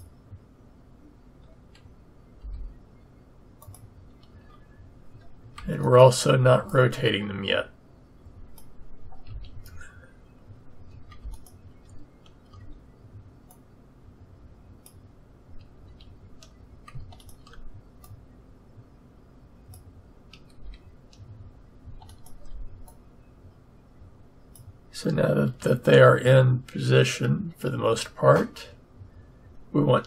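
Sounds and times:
faint low hum: 0.0 - 30.0
mouse and keyboard clicks: 3.6 - 4.6, 11.1 - 12.7, 15.6 - 18.2, 22.0 - 23.0.

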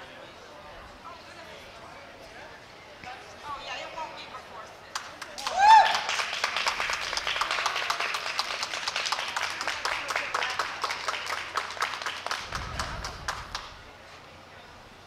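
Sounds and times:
audience applauding: 5.0 - 13.7.

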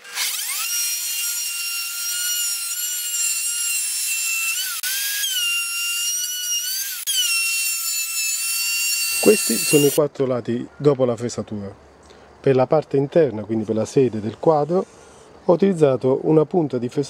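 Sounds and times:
router whining cutting wood: 0.0 - 10.0.

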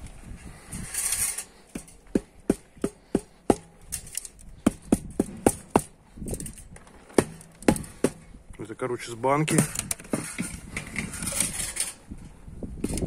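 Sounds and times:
exhaust pipe knocking on wooden boards: 1.7 - 3.8, 4.6 - 6.0.

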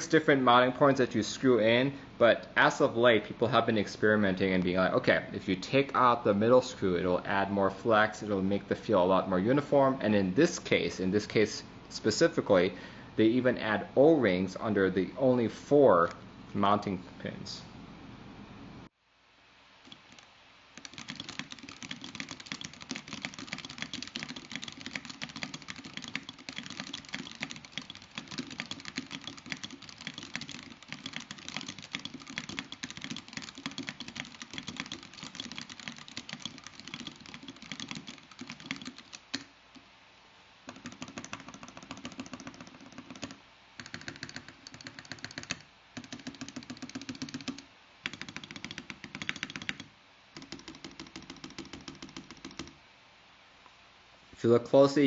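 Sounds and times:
fast mechanical keyboard typing: 19.9 - 39.8, 40.7 - 52.8.

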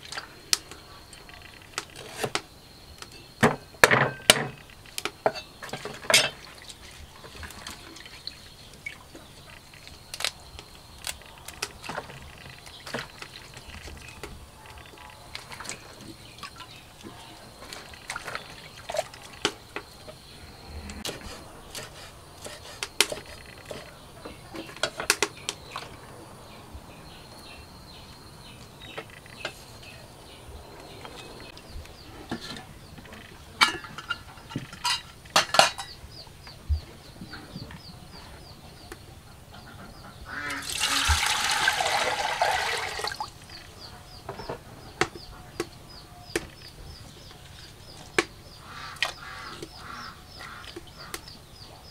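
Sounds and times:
metal pot and lid clinking: 5.3 - 6.4, 33.6 - 36.0
water pouring into metal pot: 40.5 - 43.3.

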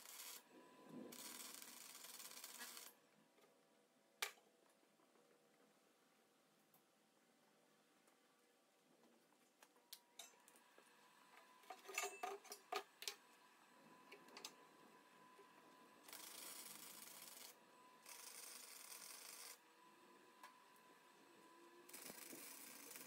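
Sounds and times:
arc welding hiss: 21.9 - 23.0.

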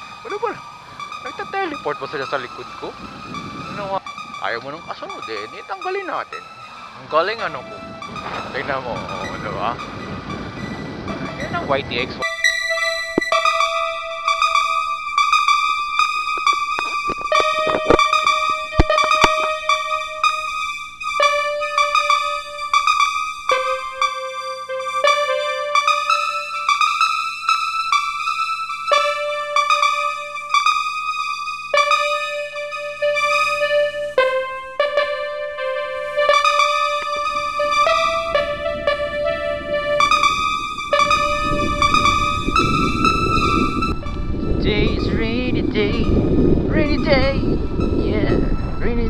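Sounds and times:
synthesizer melody of held notes: 0.0 - 49.0
low rushing noise: 37.1 - 49.0.

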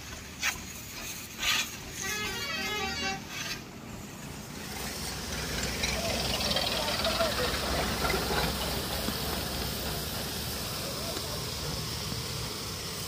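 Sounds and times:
pressure washer spray hissing: 6.2 - 13.0.

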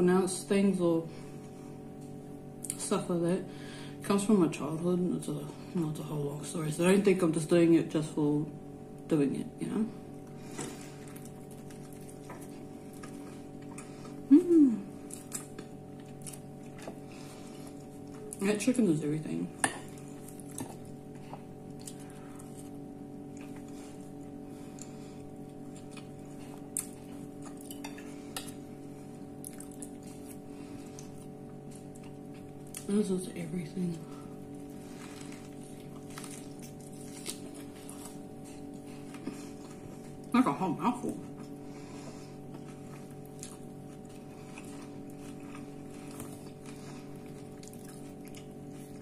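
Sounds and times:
steady low hum: 0.0 - 49.0
close-up chewing: 10.4 - 14.3, 14.9 - 18.4, 19.9 - 32.9, 34.3 - 40.4, 41.2 - 49.0.

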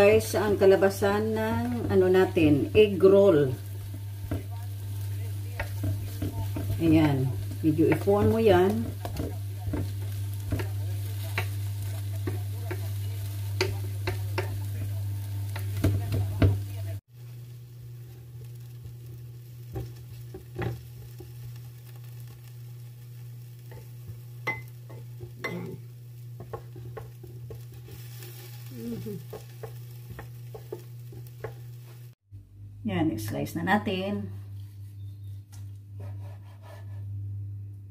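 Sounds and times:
food sizzling on griddle: 0.0 - 32.2
spatulas scraping and tapping pan: 0.4 - 16.9, 23.5 - 32.1.

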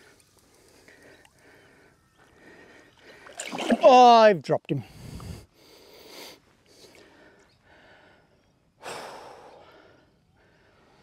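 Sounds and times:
man breathing and sighing: 4.8 - 11.0.

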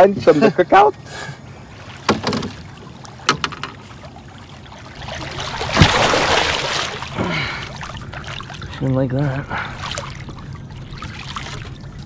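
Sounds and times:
fish splashing in water: 4.0 - 8.8
heavy slap on water: 5.6 - 6.9.

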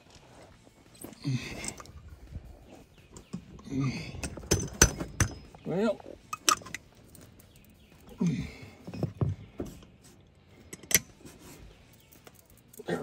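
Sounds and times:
tire plug tool clicks and knocks: 4.2 - 5.5.

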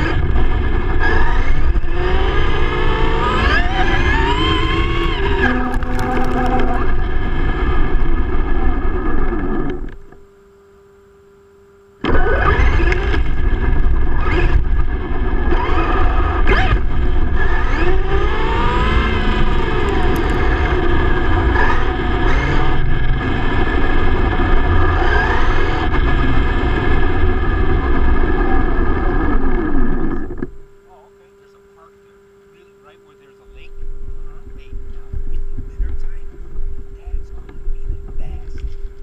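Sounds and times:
tyre and road noise: 0.0 - 10.0, 12.0 - 30.6
electric motor whining: 0.0 - 10.5, 11.4 - 39.0.

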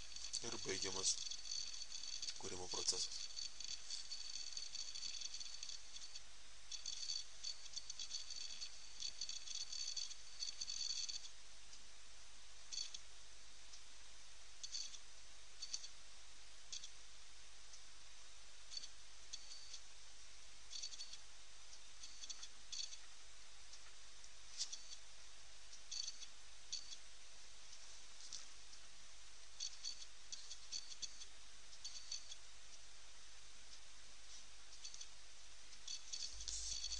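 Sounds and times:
high-pitched crackling clicks: 0.0 - 11.9, 12.7 - 13.1, 14.6 - 16.0, 16.7 - 17.0, 18.7 - 19.9, 20.7 - 25.1, 25.7 - 27.1, 28.3 - 32.9, 34.7 - 36.9
steady hiss: 0.0 - 12.5, 27.0 - 36.9
faint hum: 0.0 - 36.9.

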